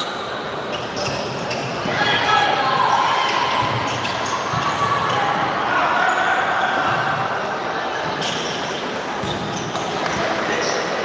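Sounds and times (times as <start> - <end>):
echoing crowd chatter: 0.0 - 11.0.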